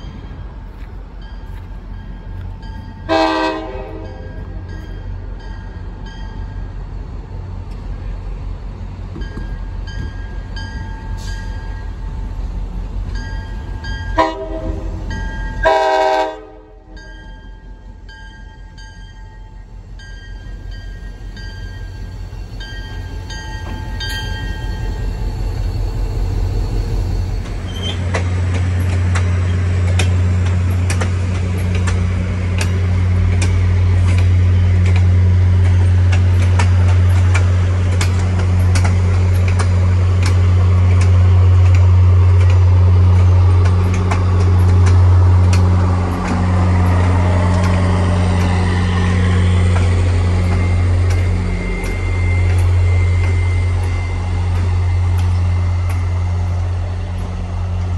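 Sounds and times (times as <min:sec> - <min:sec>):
locomotive engine rumble: 0:00.0 - 0:57.9
loud locomotive engine drone: 0:00.0 - 0:57.9
train horn blasts: 0:03.0 - 0:04.4, 0:14.1 - 0:15.0, 0:15.6 - 0:17.0.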